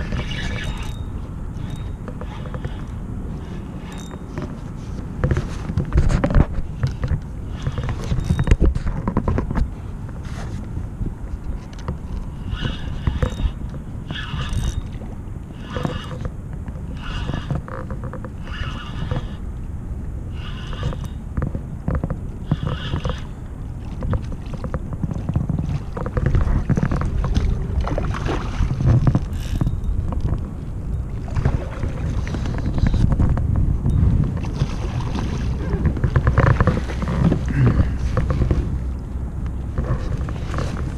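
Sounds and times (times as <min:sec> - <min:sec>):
wind buffeting microphone: 0:00.0 - 0:40.9
water slapping kayak hull: 0:11.2 - 0:40.9.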